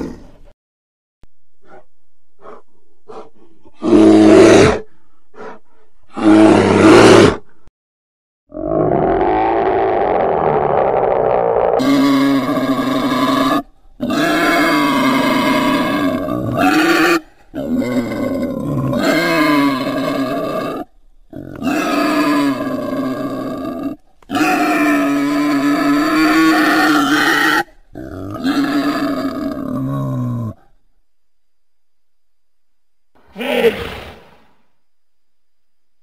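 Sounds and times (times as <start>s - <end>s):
wild boar calling: 8.5s - 30.6s.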